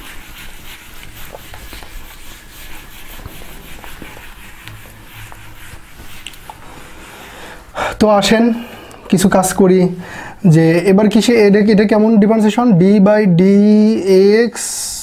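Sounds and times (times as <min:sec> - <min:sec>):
eraser rubbing on whiteboard: 0:00.0 - 0:07.4.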